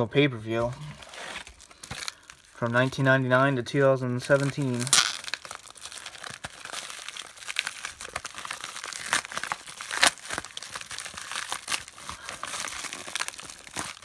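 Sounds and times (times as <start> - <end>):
plastic envelope crinkling: 0.4 - 14.0
plastic envelope ripping: 0.5 - 3.3, 4.1 - 14.0.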